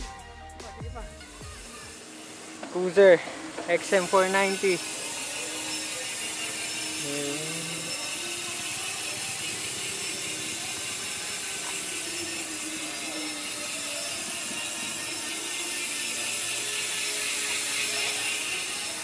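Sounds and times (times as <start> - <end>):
bicycle hub freewheeling buzz: 0.1 - 19.0.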